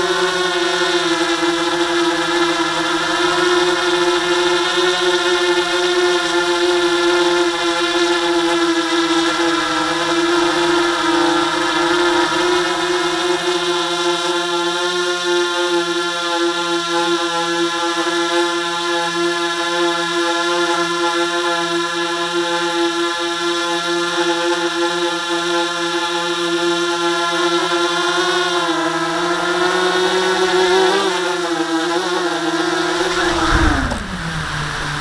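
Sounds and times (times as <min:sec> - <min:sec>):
drone propellers humming: 0:00.0 - 0:07.2, 0:07.9 - 0:15.1, 0:32.4 - 0:35.0
drone landing thump on wood: 0:33.0 - 0:35.0.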